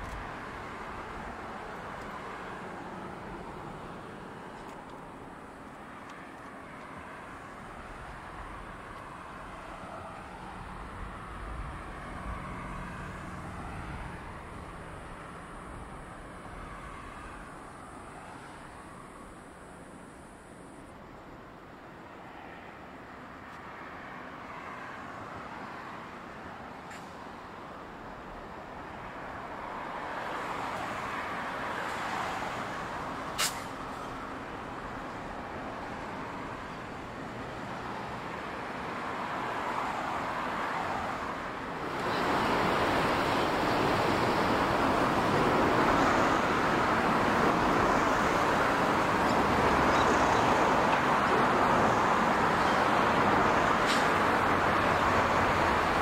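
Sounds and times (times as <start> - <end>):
train wheels on rails: 33.3 - 34.2, 41.8 - 56.0
diesel locomotive rumble: 41.6 - 56.0.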